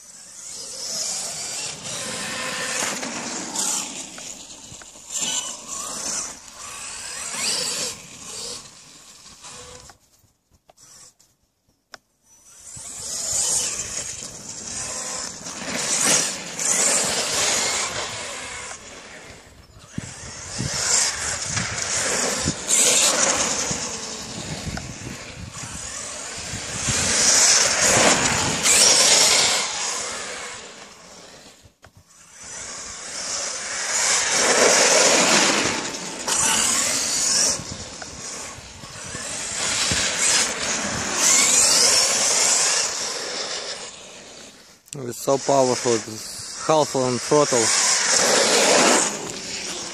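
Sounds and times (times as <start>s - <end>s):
rc truck hissing surges: 0.0s - 10.0s, 12.2s - 49.9s.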